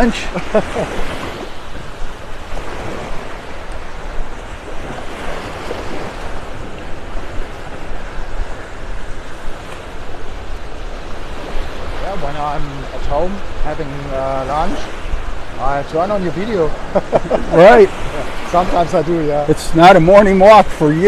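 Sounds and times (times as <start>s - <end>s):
waves breaking on beach: 0.0s - 21.0s
wind rumbling on microphone: 0.0s - 21.0s.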